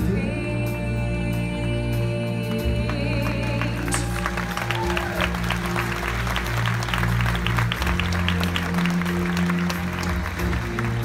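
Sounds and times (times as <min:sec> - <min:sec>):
backing music low chords: 0:00.0 - 0:11.0
audience applauding: 0:02.7 - 0:11.0.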